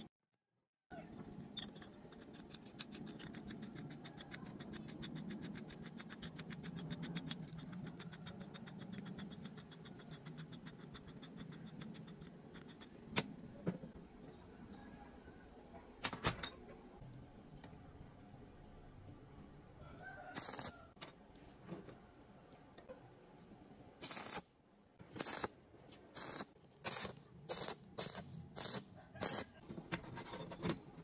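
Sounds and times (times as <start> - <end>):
fine metal ticking: 2.1 - 12.9.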